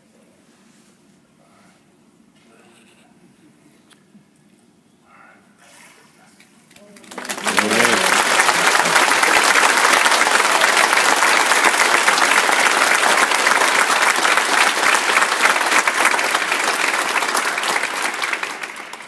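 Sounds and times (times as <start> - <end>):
congregation applauding: 6.8 - 19.0.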